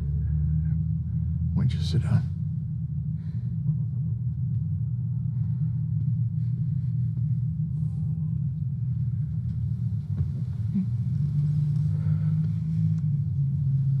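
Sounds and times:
low droning soundtrack rumble: 0.0 - 14.0.

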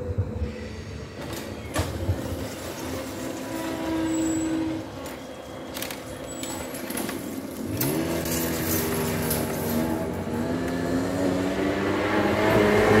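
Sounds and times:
vehicle engine accelerating: 7.6 - 13.0.

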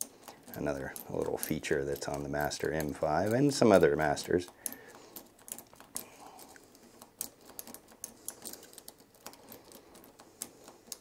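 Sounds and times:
lock pick clicking in padlock: 4.4 - 10.2.

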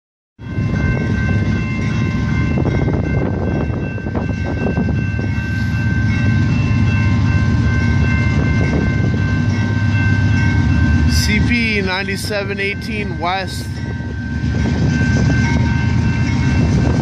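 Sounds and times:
diesel locomotive rumble: 0.4 - 17.0
railroad crossing bells ringing: 0.4 - 17.0.

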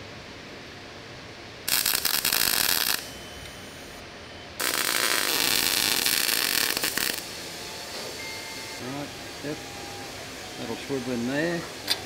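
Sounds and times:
loud hissing rushing bursts: 4.6 - 11.9.

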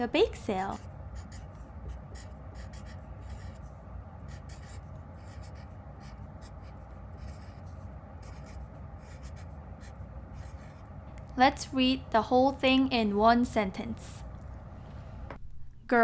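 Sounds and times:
steady low hum: 0.0 - 16.0
marker scratching on paper: 0.6 - 10.9.

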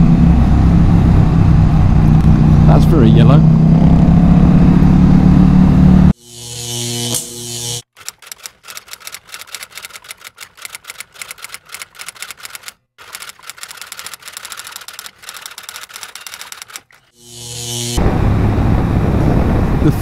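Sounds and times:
motorcycle engine: 0.0 - 8.4, 12.6 - 20.0
rapid irregular clicking: 7.8 - 17.2.

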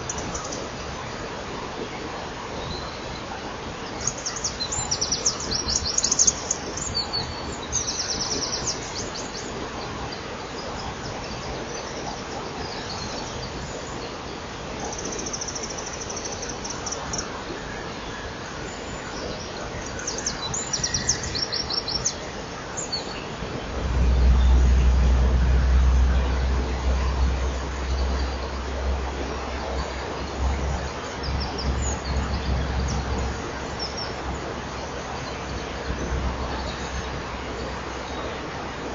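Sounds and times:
low rumble: 23.3 - 38.9.

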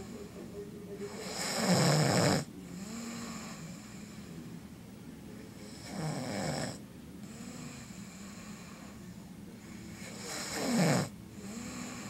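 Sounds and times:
quiet breathing: 0.0 - 12.0
man snoring: 1.1 - 4.4, 5.7 - 9.0, 10.0 - 12.0.

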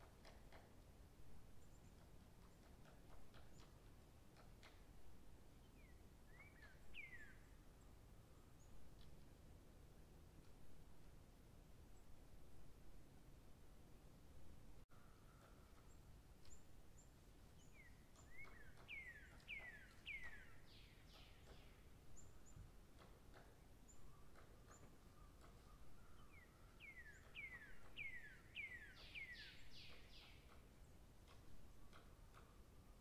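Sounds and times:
songbird whistled notes: 26.0 - 30.4.

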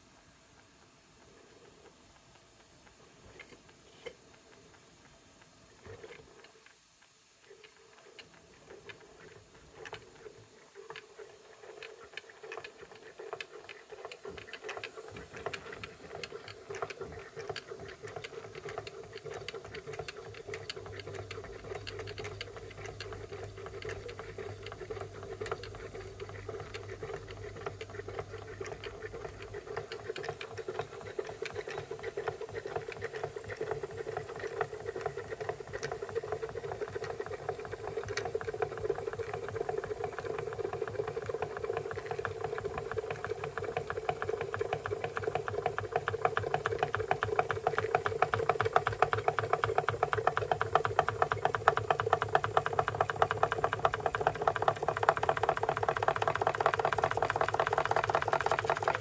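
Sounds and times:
model steam engine clattering: 7.5 - 59.0.

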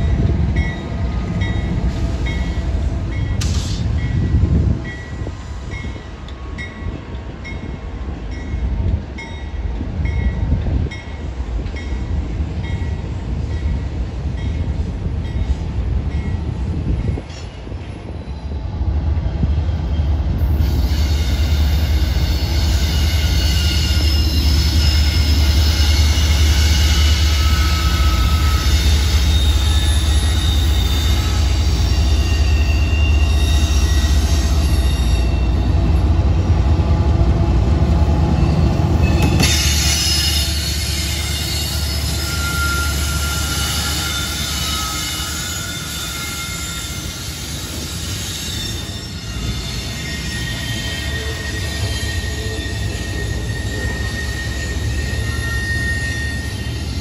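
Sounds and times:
diesel locomotive engine drone: 0.0 - 57.0
freight train rumbling past: 0.0 - 57.0
wheel squeal: 20.6 - 35.7, 38.4 - 57.0.

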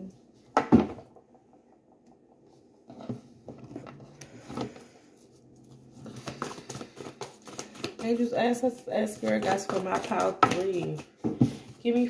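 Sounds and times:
cards scraping and tapping: 5.7 - 8.3, 9.1 - 11.6.

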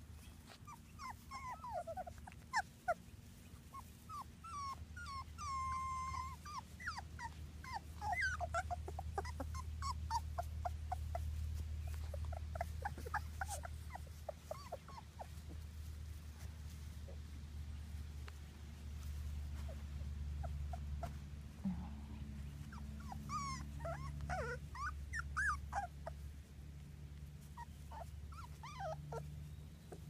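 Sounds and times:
puppies whimpering and squeaking: 0.1 - 18.0, 19.1 - 21.2, 22.4 - 26.3, 27.4 - 30.0
low hum: 14.8 - 25.1.

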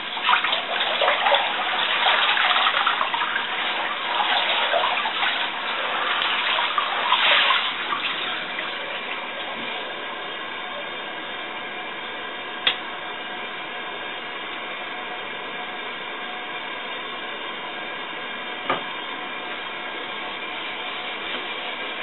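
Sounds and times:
water running into bathtub: 0.0 - 11.0, 19.6 - 22.0.

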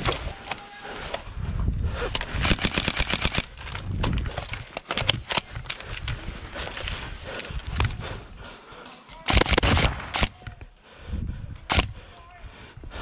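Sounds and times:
airsoft guns firing: 9.3 - 10.4.

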